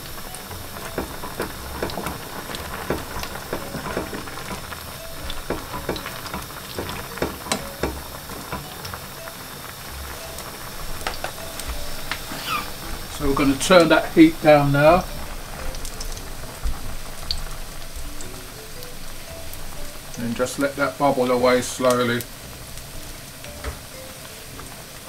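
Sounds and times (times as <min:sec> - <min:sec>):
wooden spoon stirring vegetables: 0:00.0 - 0:17.3
pot boiling and bubbling: 0:00.0 - 0:25.0.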